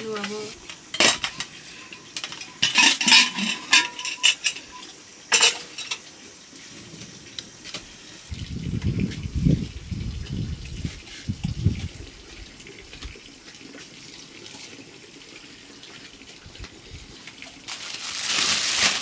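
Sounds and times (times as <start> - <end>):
metal dishes clinking and scraping: 0.2 - 6.1
metal ringing: 0.9 - 6.0.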